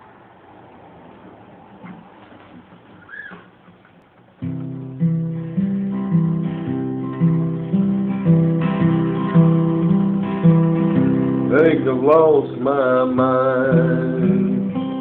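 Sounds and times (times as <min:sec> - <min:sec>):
acoustic guitar strumming: 0:02.6 - 0:15.0.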